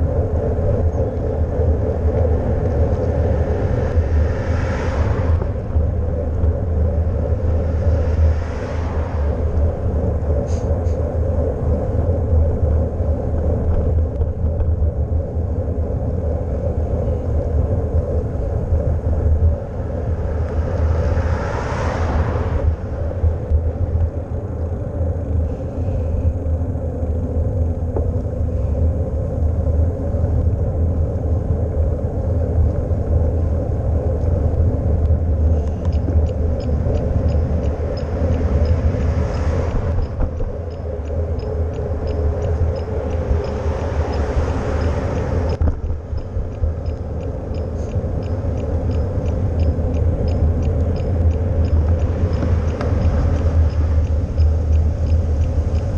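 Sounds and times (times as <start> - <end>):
road and tyre noise: 0.0 - 55.9
wind noise on microphone: 0.0 - 55.9
vehicle passing: 1.0 - 13.4, 18.6 - 26.3, 32.4 - 55.9.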